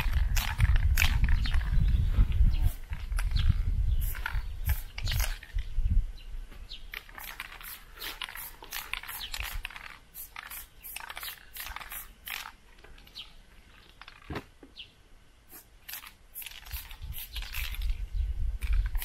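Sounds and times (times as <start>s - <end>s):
spray paint can hissing: 0.0s - 1.7s, 4.0s - 5.6s, 6.9s - 13.2s, 15.5s - 18.0s.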